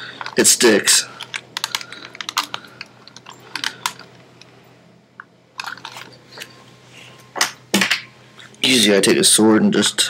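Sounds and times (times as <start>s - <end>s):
plastic parts clicking and creaking: 0.0s - 4.5s, 5.2s - 6.5s.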